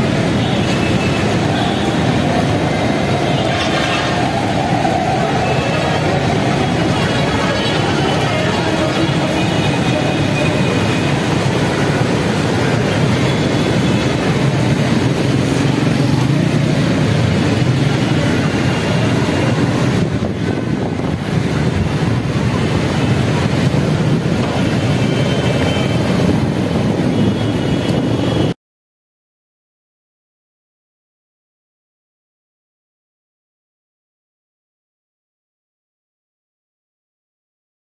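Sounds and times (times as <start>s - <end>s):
vehicle engines running: 0.0s - 28.4s.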